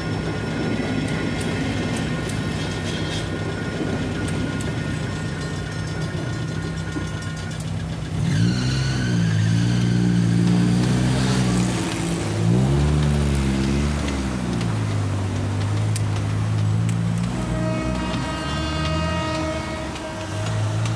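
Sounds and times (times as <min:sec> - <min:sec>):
car engines revving and accelerating: 0:08.1 - 0:19.4.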